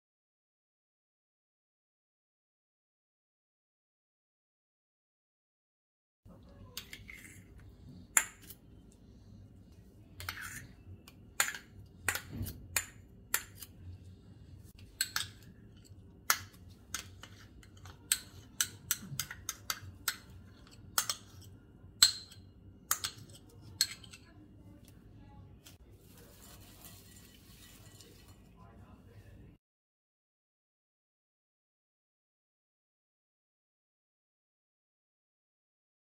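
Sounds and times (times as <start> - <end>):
metal spoon clinking on bowls: 14.8 - 24.4.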